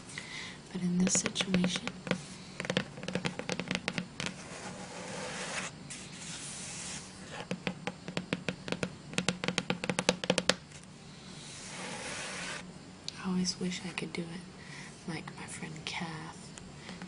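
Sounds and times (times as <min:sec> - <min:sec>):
fingernails tapping on book cover: 0:01.2 - 0:05.7, 0:07.3 - 0:10.6
rubbing across book cover: 0:04.2 - 0:07.4, 0:11.4 - 0:12.6.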